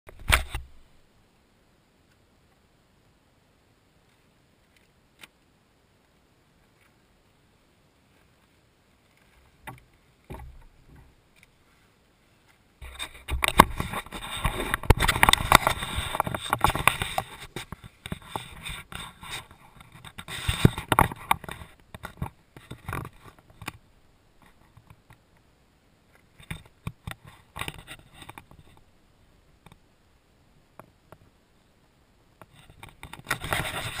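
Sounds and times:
crackling and rubbing on camera: 0:00.1 - 0:00.8, 0:08.1 - 0:23.8, 0:24.4 - 0:25.2, 0:26.1 - 0:28.9, 0:32.4 - 0:34.0.

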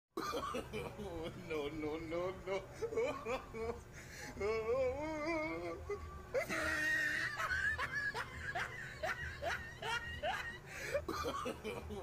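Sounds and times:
person laughing: 0:02.8 - 0:03.8, 0:06.4 - 0:12.0.

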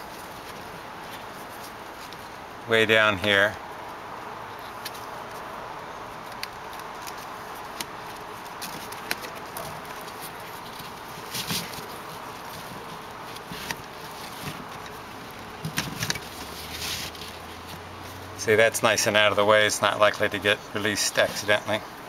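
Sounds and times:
strap sliding rustle: 0:00.0 - 0:02.5, 0:06.2 - 0:18.4.

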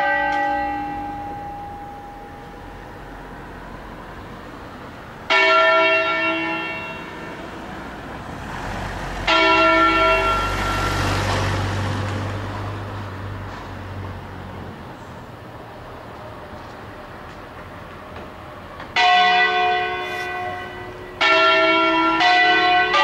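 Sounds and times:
church bell ringing: 0:00.0 - 0:08.1, 0:09.2 - 0:12.3, 0:18.9 - 0:23.0.

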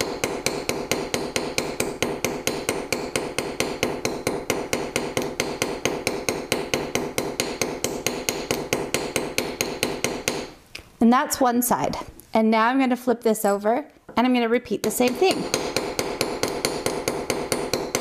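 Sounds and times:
hammer tapping metal: 0:00.0 - 0:10.6, 0:14.8 - 0:18.0.

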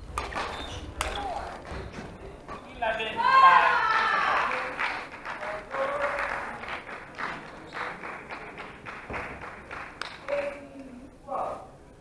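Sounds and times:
echoing claps and taps: 0:04.3 - 0:10.6.

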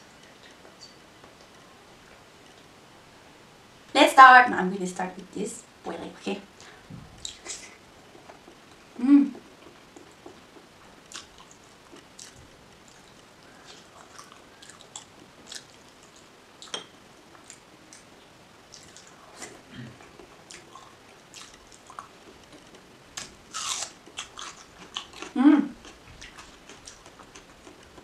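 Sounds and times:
wet chewing mouth sounds: 0:09.6 - 0:16.7, 0:18.7 - 0:22.4, 0:23.5 - 0:28.0.

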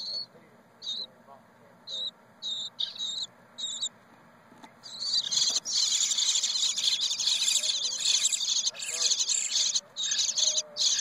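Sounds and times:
nestlings begging calls: 0:00.0 - 0:04.0, 0:04.7 - 0:11.0.

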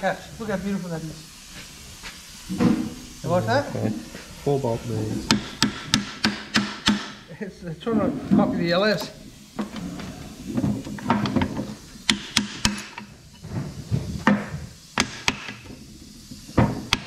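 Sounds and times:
hammer knocking on metal: 0:05.3 - 0:07.1.

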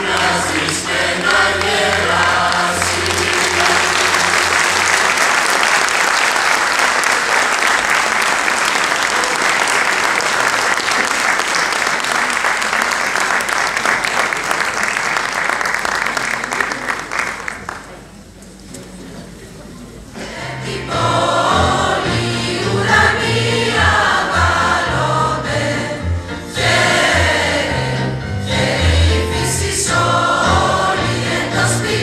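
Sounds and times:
choir holding a chord: 0:00.0 - 0:05.8, 0:20.2 - 0:32.0
audience applauding: 0:00.0 - 0:18.1.

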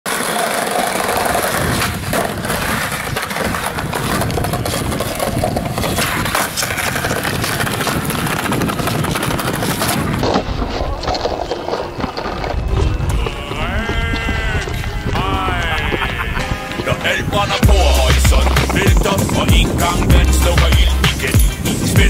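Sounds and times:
skateboard wheels rolling on concrete: 0:00.0 - 0:22.0
skateboard knocks: 0:00.1 - 0:12.0.

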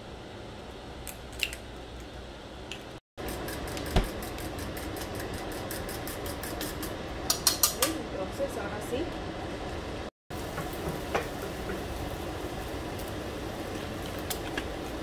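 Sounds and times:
eggs being cracked: 0:01.0 - 0:02.1
fork beating eggs in a bowl: 0:03.2 - 0:08.0.

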